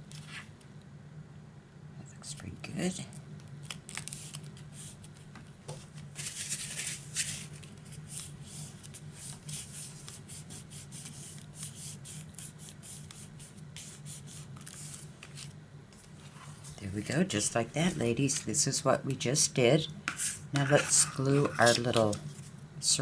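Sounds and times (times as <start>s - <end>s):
fingers scuffing on paper: 4.0s - 16.8s.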